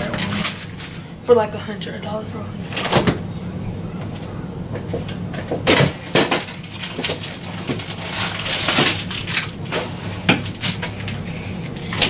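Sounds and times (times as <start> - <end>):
items knocking and clinking in fridge: 4.7 - 11.0.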